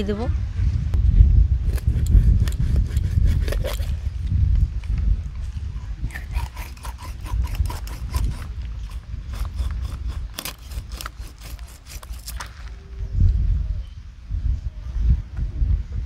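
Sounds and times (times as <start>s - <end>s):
low rumble: 0.0s - 11.2s
knife cutting through fish scales: 1.6s - 4.0s, 6.1s - 12.5s.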